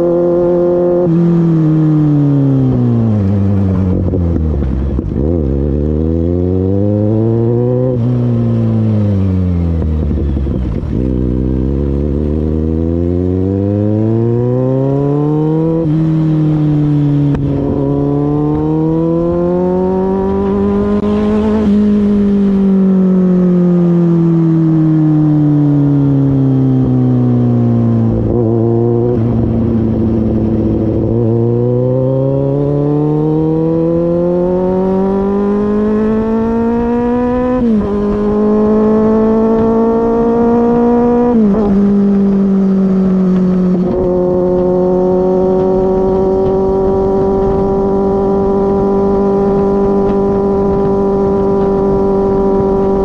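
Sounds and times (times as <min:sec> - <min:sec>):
motorcycle engine accelerating: 0:00.0 - 0:53.0
wind rush: 0:15.5 - 0:23.4, 0:27.1 - 0:53.0.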